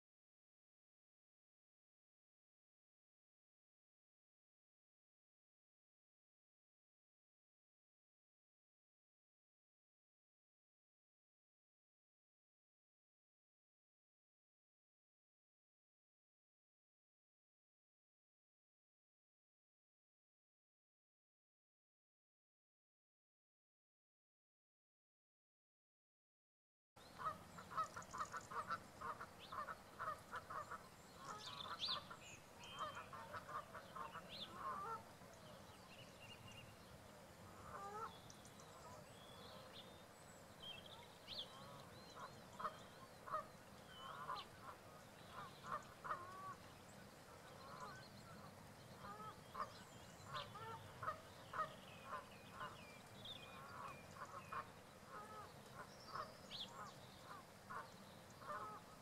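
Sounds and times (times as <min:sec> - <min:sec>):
goose-like bird calls: 0:27.2 - 0:35.0, 0:37.5 - 0:38.1, 0:41.3 - 0:46.6, 0:49.0 - 0:52.8, 0:53.6 - 0:59.0.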